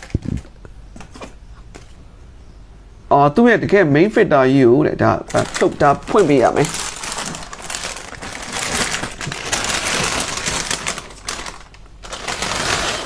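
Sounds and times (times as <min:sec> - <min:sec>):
plastic bag crinkling: 0:00.0 - 0:00.5, 0:05.2 - 0:13.0.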